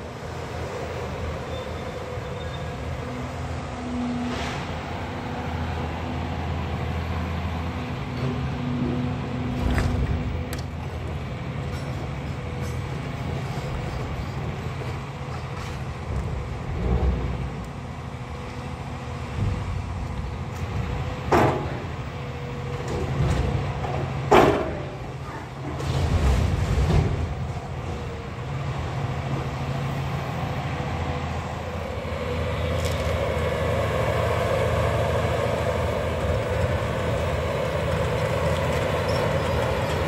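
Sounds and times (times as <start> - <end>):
diesel machinery running: 0.0 - 40.0
debris crashing and scraping: 25.6 - 27.8.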